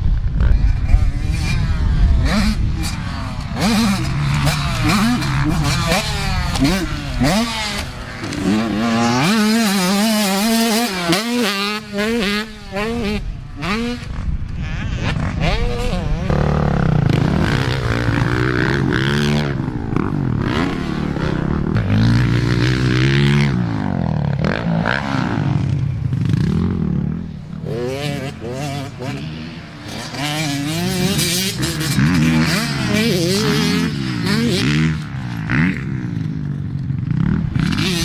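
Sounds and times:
dirt bike engines revving: 0.0 - 38.0.

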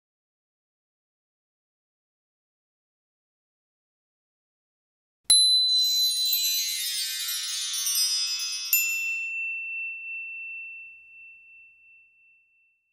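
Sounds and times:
bright ringing ding: 5.3 - 12.9
shimmering chime cascade: 5.4 - 11.1.

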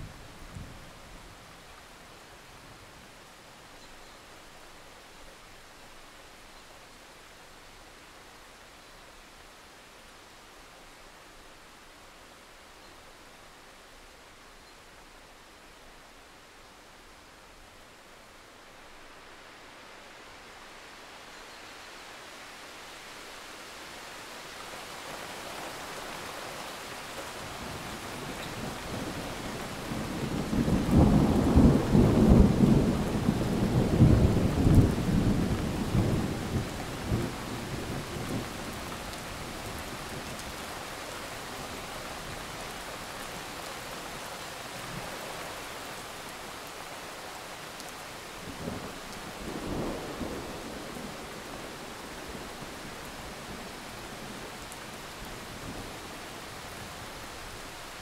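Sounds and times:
steady rain falling: 0.0 - 58.0
thunder rumbling: 29.9 - 38.5.

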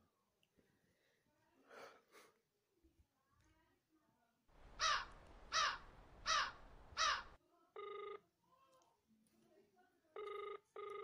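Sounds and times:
bird cawing: 4.6 - 7.4
phone ringback tone beep: 7.8 - 8.2, 10.2 - 11.0.

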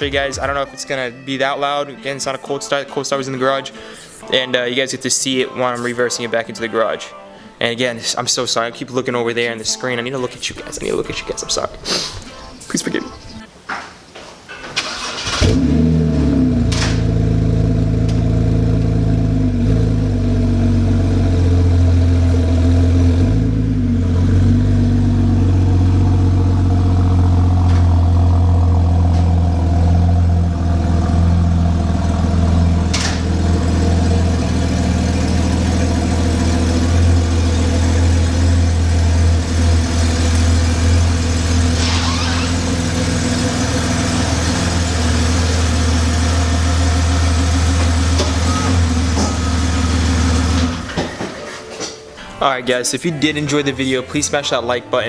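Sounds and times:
car engine idling with deep drone: 15.4 - 50.9.

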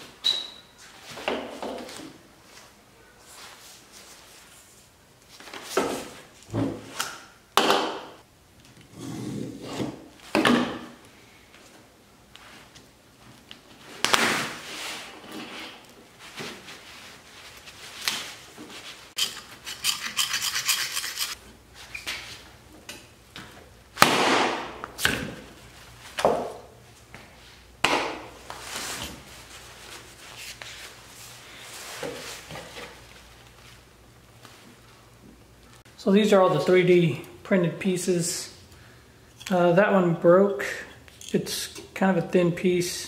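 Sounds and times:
fast rasping: 19.2 - 21.4.

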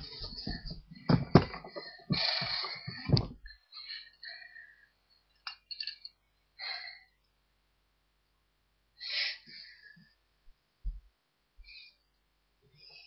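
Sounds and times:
soft rustling and shuffling: 0.0 - 3.5.

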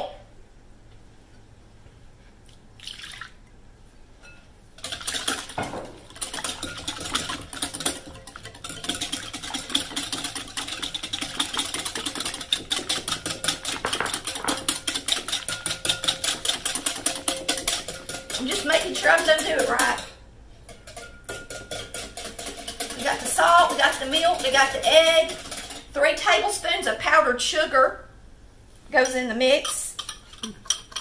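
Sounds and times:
whisk clicking against glass bowl: 4.8 - 20.0, 20.7 - 25.9.

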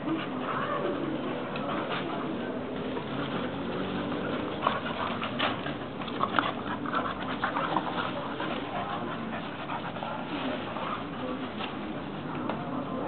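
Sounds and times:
dogs scuffling: 1.3 - 13.0
dogs panting: 2.9 - 13.0.

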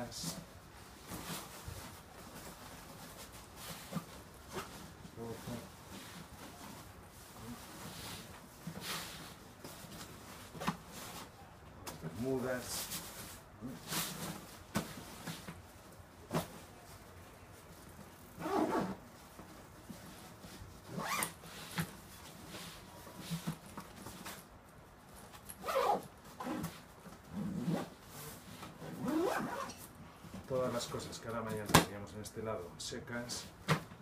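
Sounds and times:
zip rasping: 18.4 - 19.0, 20.9 - 21.4, 25.6 - 26.7, 28.8 - 29.8.

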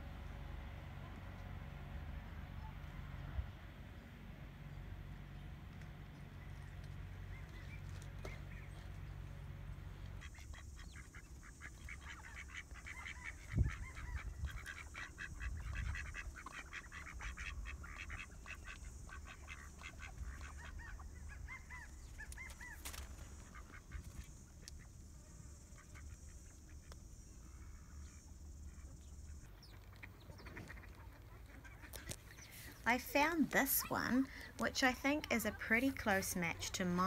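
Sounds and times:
ducks quacking: 10.1 - 37.0.

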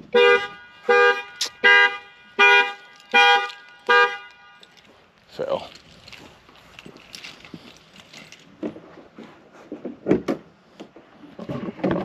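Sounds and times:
car horn honking: 0.0 - 4.8.

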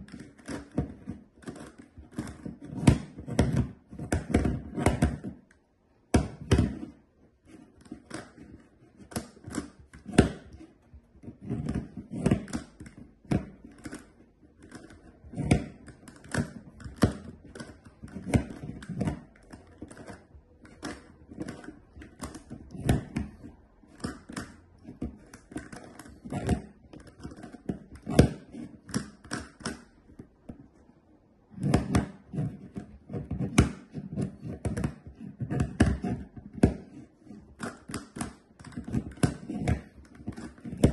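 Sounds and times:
plastic puzzle clicking: 0.0 - 30.6, 31.5 - 40.9.

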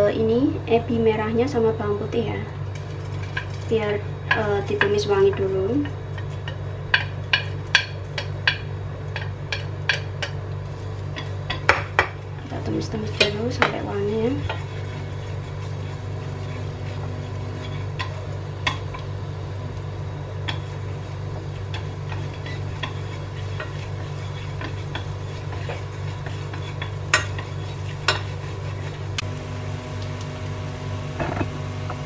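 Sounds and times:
low hum: 0.0 - 32.0
garlic sizzling in oil: 5.8 - 32.0.

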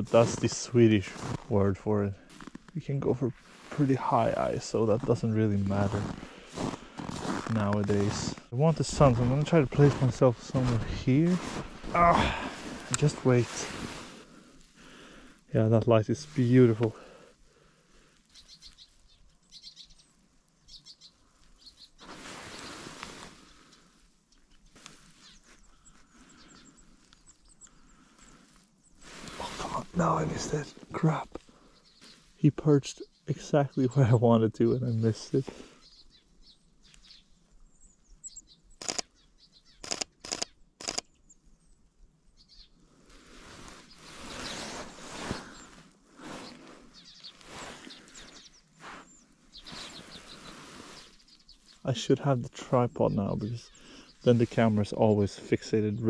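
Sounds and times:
songbirds chirping: 0.0 - 56.0
faint high bird chirps: 18.3 - 22.8, 35.8 - 42.8
rustling: 21.2 - 26.2, 43.1 - 51.8
camera shutter clicks: 39.8 - 41.1.

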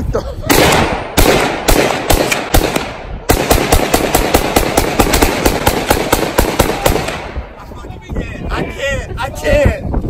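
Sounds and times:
gunshots: 0.5 - 7.6.

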